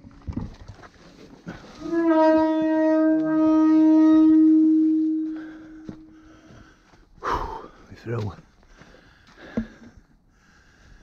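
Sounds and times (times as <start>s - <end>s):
long horn-like blast: 1.5s - 6.5s.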